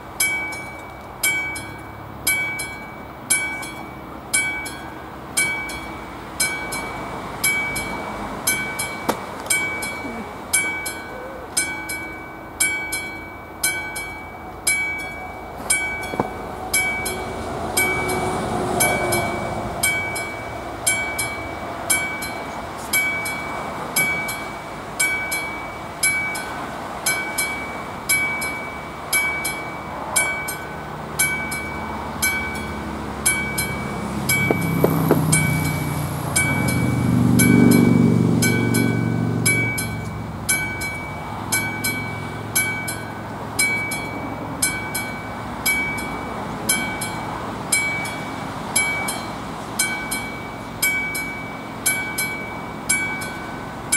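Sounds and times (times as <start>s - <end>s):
level-crossing warning bell: 0.0s - 53.9s
train wheels rumbling on rails: 0.0s - 53.9s.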